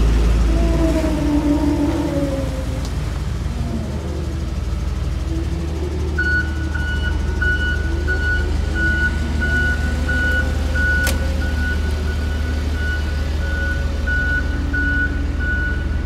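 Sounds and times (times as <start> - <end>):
diesel engine running: 0.0 - 16.0
backup alarm beeping: 6.2 - 16.0.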